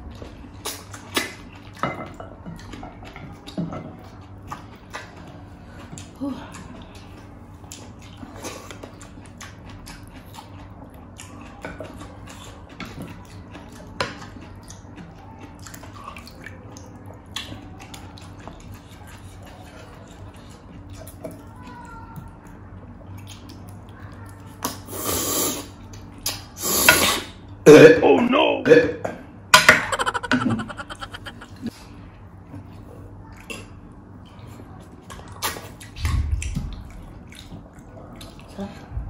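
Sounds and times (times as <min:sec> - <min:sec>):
chewing smacks and clicks: 0:07.6 - 0:21.3, 0:23.1 - 0:24.8, 0:35.3 - 0:38.5.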